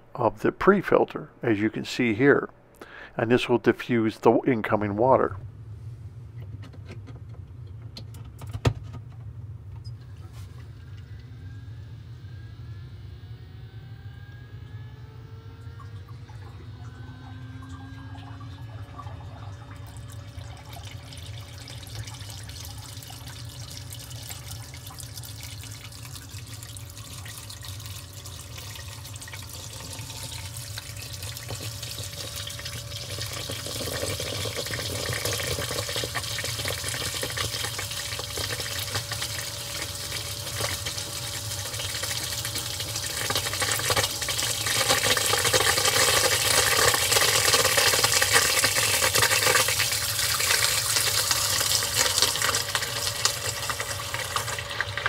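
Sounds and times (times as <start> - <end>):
water gushing and splashing: 18.7 - 55.0.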